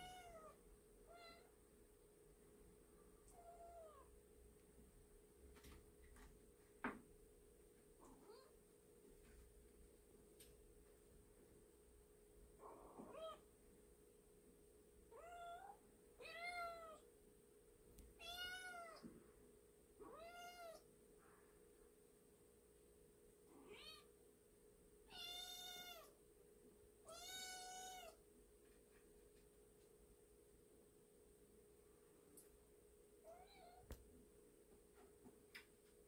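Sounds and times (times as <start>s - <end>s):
kitten meowing: 0.0s - 1.5s, 20.1s - 20.8s, 25.1s - 26.1s, 27.1s - 28.2s.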